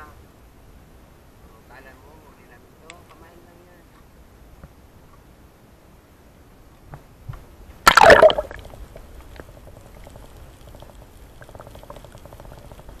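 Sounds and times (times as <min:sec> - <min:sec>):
faint underwater ticking and crackle: 0:00.0 - 0:13.0
camera splashing into sea: 0:07.8 - 0:08.8
muffled underwater hush: 0:07.9 - 0:13.0.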